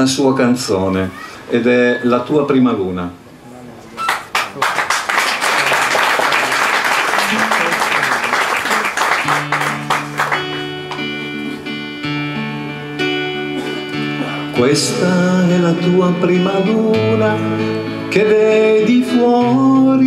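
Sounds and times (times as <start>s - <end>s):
audience applause: 4.0s - 11.1s
acoustic guitar: 7.3s - 20.0s.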